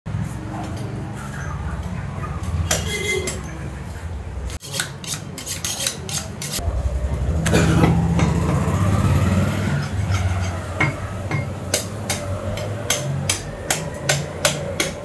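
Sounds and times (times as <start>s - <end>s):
cleaver chopping on wooden block: 10.8s - 15.0s.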